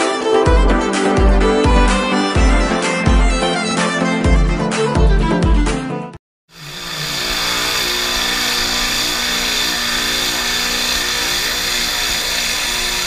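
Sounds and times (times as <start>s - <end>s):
pressure washer engine humming: 6.5s - 13.0s.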